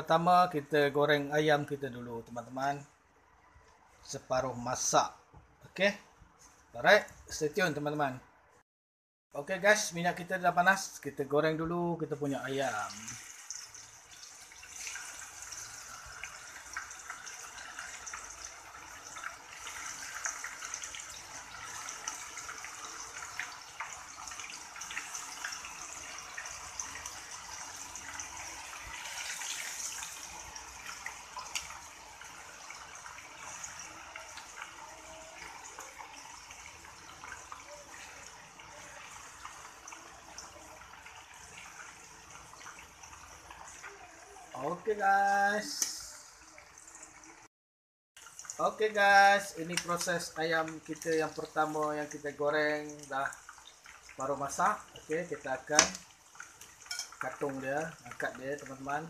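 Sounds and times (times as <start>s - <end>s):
chicken sizzling in hot oil: 12.2s - 47.5s, 48.2s - 59.0s.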